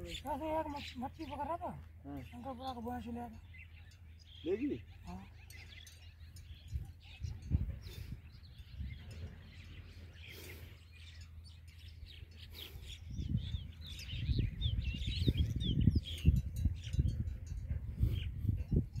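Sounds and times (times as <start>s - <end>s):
small birds chirping: 0.0s - 19.0s
wind rumble on microphone: 6.2s - 10.2s, 11.8s - 19.0s.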